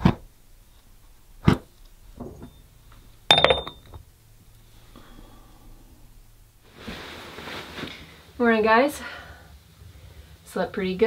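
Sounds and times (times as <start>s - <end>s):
glass lid clinking on jar: 3.3s - 3.9s.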